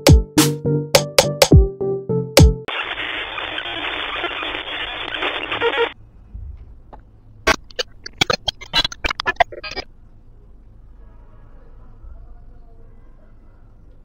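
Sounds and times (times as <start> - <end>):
static noise hiss: 2.7 - 6.2, 7.4 - 10.4.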